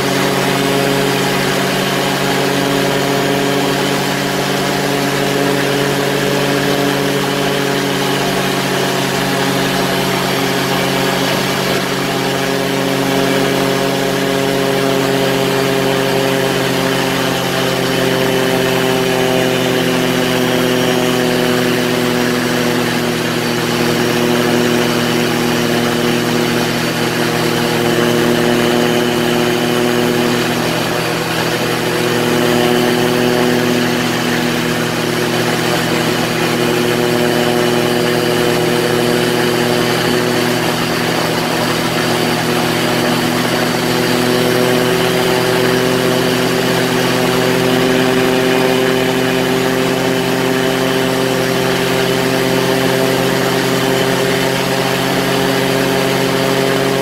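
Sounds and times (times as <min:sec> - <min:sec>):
ultralight aircraft engine running: 0:00.0 - 0:57.0.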